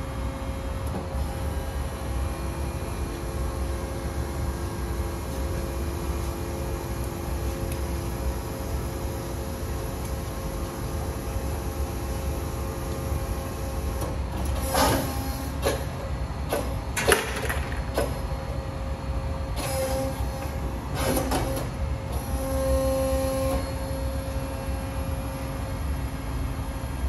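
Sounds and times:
injection molding machine hum: 0:00.0 - 0:27.0
pitched machine whine: 0:17.0 - 0:27.0.

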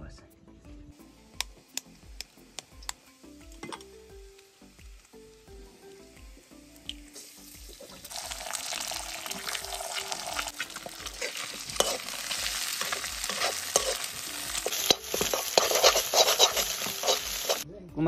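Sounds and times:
eggs sizzling in a wok: 0:00.9 - 0:17.6
metal spatula scraping: 0:09.2 - 0:17.6.

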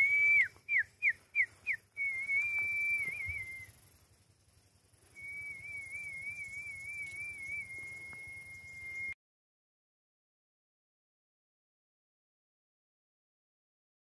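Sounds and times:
person whistling: 0:00.0 - 0:03.7, 0:05.2 - 0:09.2.

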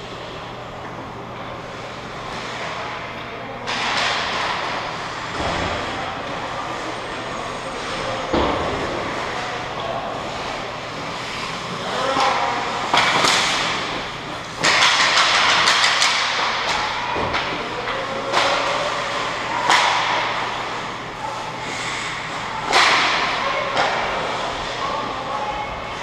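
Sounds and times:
hockey sticks and puck clacking: 0:01.6 - 0:25.7
skate blades scraping ice: 0:10.2 - 0:16.7.

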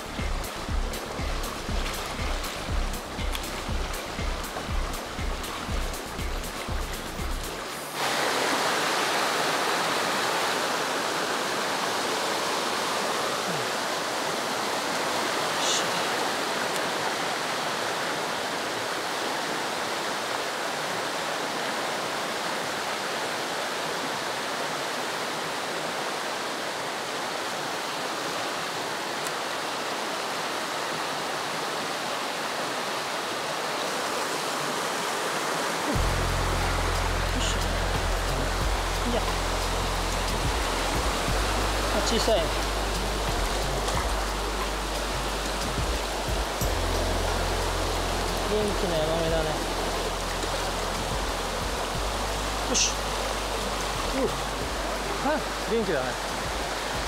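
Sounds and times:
background music: 0:00.0 - 0:08.0, 0:36.0 - 0:57.0
stream rushing over rocks: 0:00.0 - 0:57.0.

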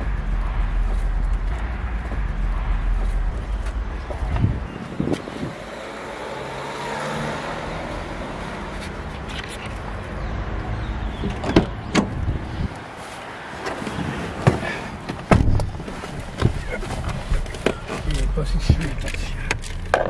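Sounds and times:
car engine running: 0:00.0 - 0:06.6, 0:15.3 - 0:20.0.

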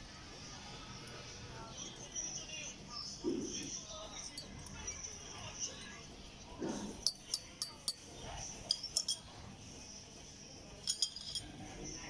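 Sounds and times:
teaspoon clinking in ceramic cup: 0:07.0 - 0:09.4, 0:10.8 - 0:11.6.

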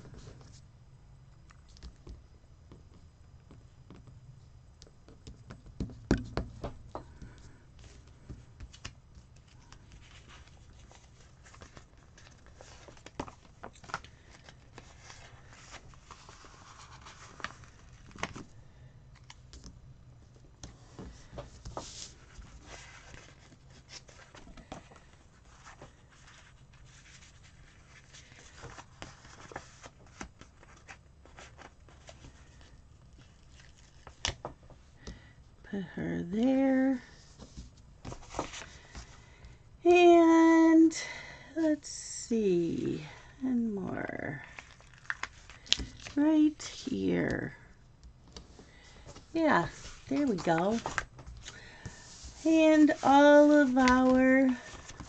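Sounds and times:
paper stickers clicking and tapping: 0:44.6 - 0:46.2, 0:53.4 - 0:55.0.

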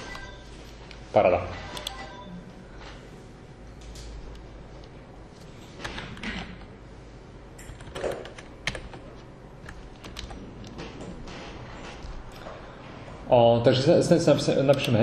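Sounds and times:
keyboard keystrokes: 0:09.6 - 0:10.8.

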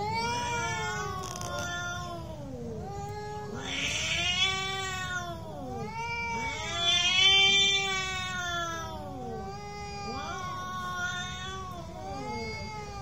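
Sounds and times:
cats yowling: 0:00.0 - 0:13.0
cat hissing: 0:03.5 - 0:05.4.

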